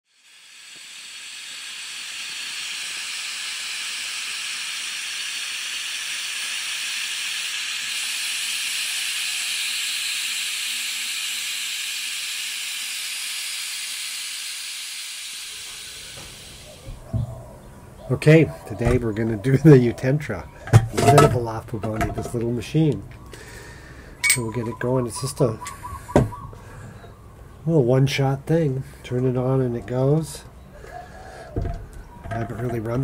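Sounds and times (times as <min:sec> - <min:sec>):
steady hiss: 0:00.1 - 0:11.2, 0:14.4 - 0:17.0.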